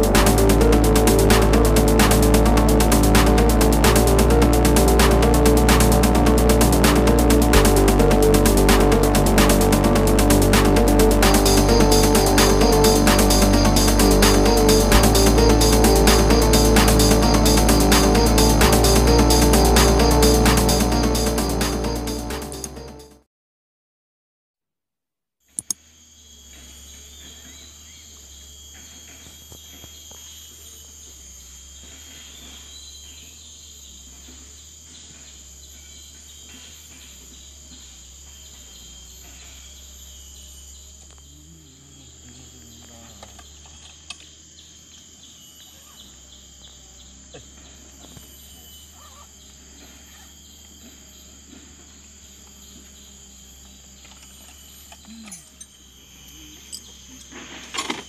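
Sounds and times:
low steady rumble: 0:00.0 - 0:23.0
small clicks: 0:25.5 - 0:25.8
high-pitched insect chorus: 0:25.7 - 0:58.0.

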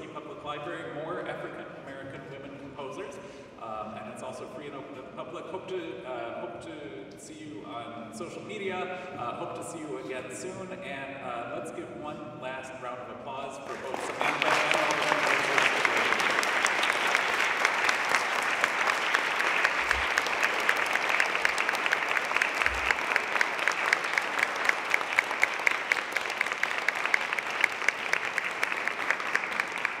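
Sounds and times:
audience applauding: 0:13.7 - 0:30.0.

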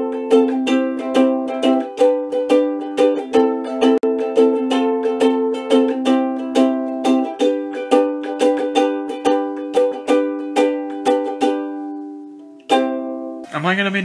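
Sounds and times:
ukulele strumming chords: 0:00.0 - 0:13.8.

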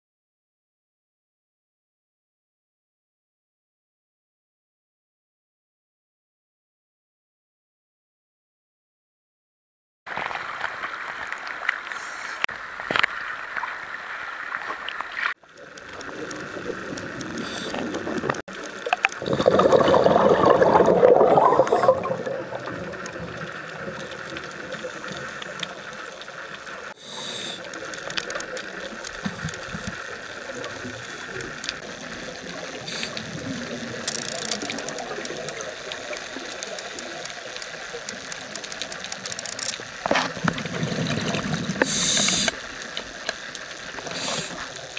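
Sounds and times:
underwater hiss and bubbling: 0:10.4 - 0:44.9.

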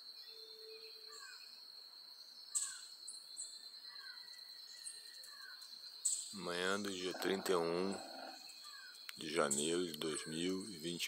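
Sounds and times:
bird calls: 0:02.4 - 0:11.0
high-pitched insect drone: 0:06.0 - 0:08.6.

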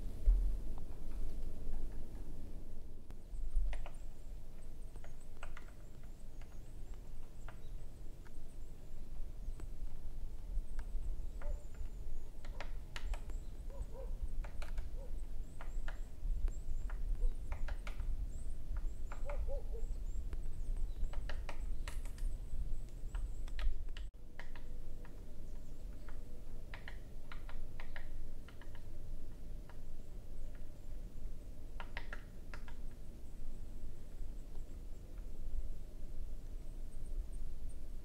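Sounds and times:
wind rumble on microphone: 0:00.0 - 0:24.1.

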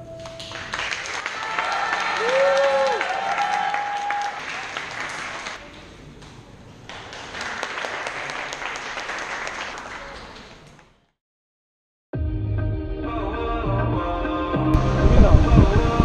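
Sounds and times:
crowd applauding: 0:00.1 - 0:06.0, 0:06.8 - 0:10.9.

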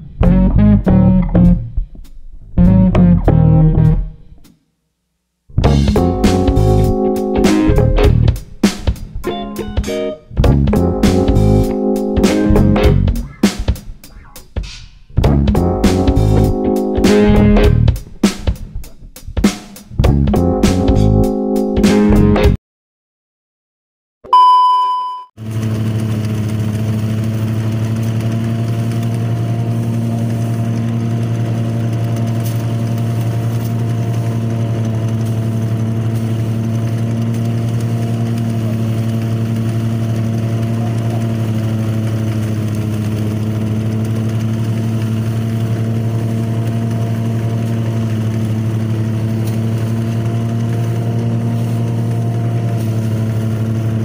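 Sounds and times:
rice thresher engine humming: 0:05.6 - 0:14.4, 0:15.2 - 0:18.3, 0:25.4 - 0:54.0
electronic test-tone beep: 0:24.3 - 0:25.3.

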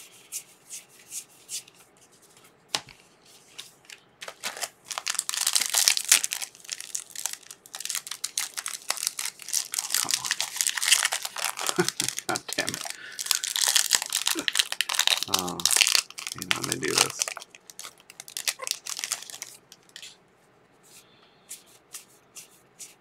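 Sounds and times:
foil wrapper tearing and crinkling: 0:04.3 - 0:20.2.

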